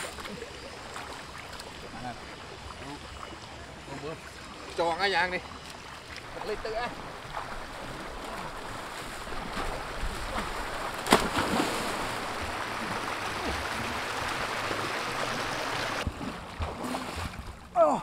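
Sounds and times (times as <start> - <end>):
river water rushing: 6.3 - 16.0
person splashing into river: 7.4 - 14.0.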